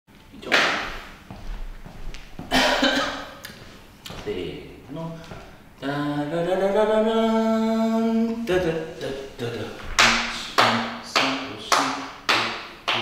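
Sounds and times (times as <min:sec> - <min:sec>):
hand claps: 0:00.5 - 0:00.9, 0:09.8 - 0:13.0
man humming: 0:05.8 - 0:12.1.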